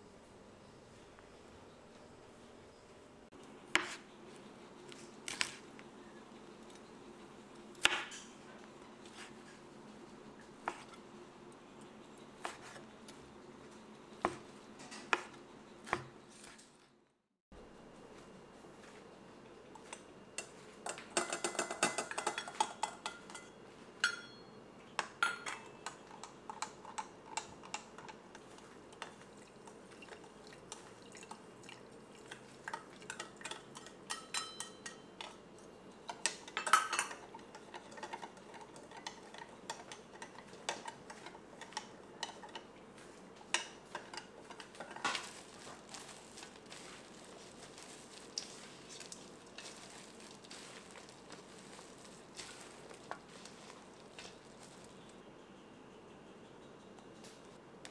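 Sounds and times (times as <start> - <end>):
spoon clinking against glass: 21.2 - 24.6, 33.5 - 35.1
hands mixing meat in metal bowl: 25.2 - 55.2.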